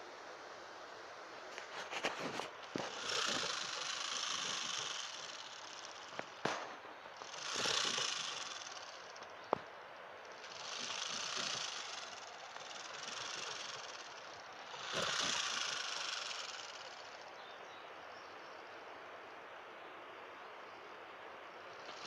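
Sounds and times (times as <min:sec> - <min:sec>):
porcupine quills rattling: 0:01.5 - 0:09.5, 0:10.2 - 0:17.2, 0:21.8 - 0:22.0.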